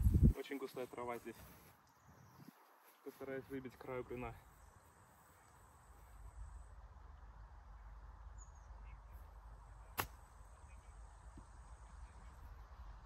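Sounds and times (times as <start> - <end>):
golf club chipping ball from grass: 9.9 - 10.4.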